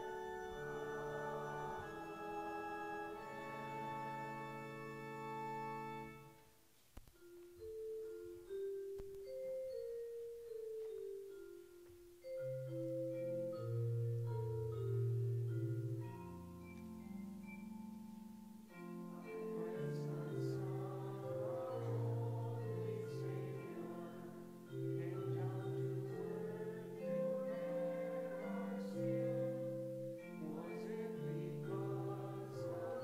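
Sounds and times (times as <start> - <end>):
church organ: 0.0 - 6.5, 7.2 - 33.0.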